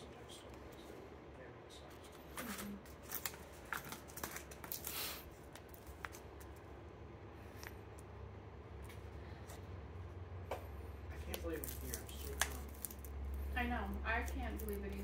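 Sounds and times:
plastic packages crinkling and tapping: 2.2s - 6.6s, 11.2s - 15.0s.

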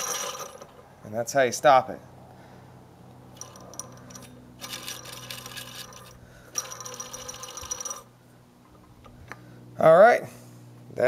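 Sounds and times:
metallic rattling and jingling: 3.3s - 8.1s.

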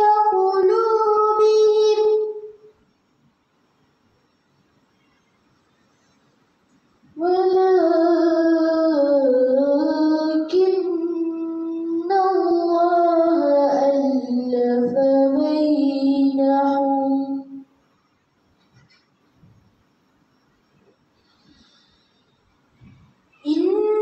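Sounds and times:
girl chanting melodically: 0.0s - 2.6s, 7.2s - 17.7s, 23.4s - 24.0s.

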